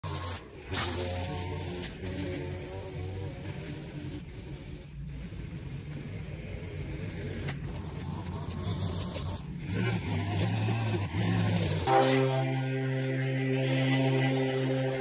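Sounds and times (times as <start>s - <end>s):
string trimmer engine running: 7.5s - 15.0s.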